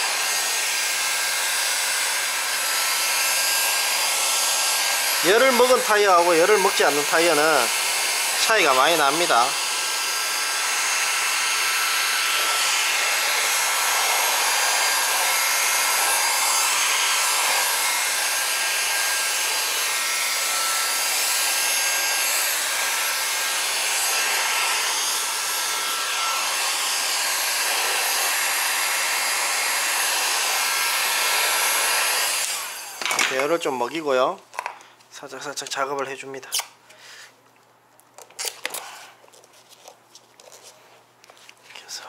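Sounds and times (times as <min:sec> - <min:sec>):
heat gun blowing: 0:00.0 - 0:33.6.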